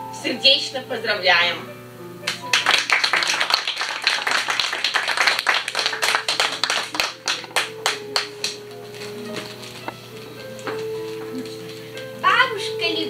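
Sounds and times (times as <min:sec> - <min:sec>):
small audience clapping: 0:02.2 - 0:09.8.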